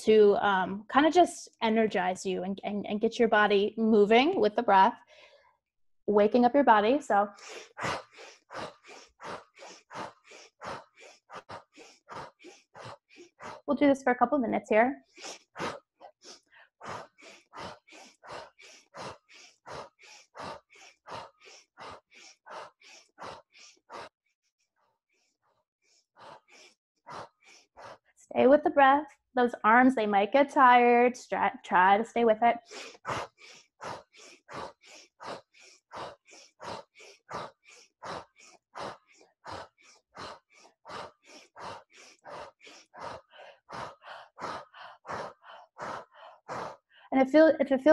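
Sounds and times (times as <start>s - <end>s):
rapid rhythmic breathing: 7.2s - 14.2s, 15.0s - 24.2s, 25.8s - 28.3s, 32.6s - 47.2s.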